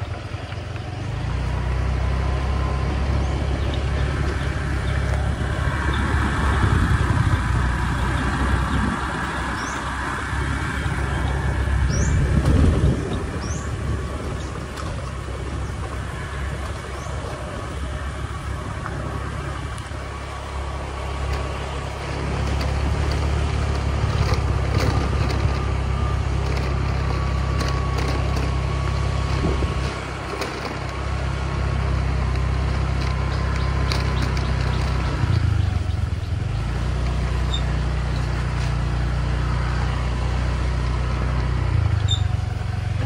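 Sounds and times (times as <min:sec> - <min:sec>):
motorcycle engine running: 0:00.0 - 0:43.0
wind on microphone: 0:02.7 - 0:20.1
small rattles: 0:21.1 - 0:35.9.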